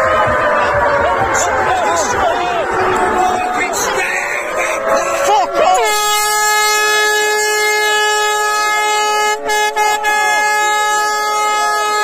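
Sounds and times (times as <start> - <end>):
crowd shouting: 0.0 - 12.0
air horn long note: 5.8 - 12.0.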